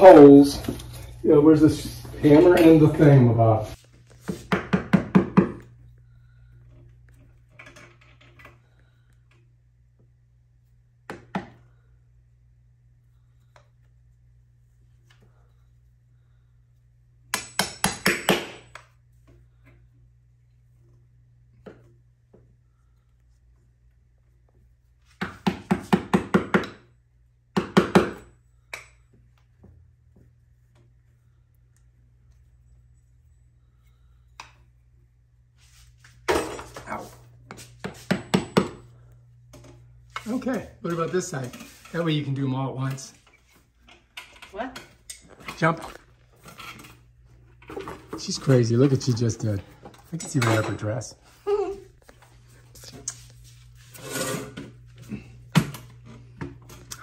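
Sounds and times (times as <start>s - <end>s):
hammer knocking wall anchor: 4.5s - 5.6s, 17.3s - 18.7s, 25.2s - 26.9s, 27.6s - 28.3s.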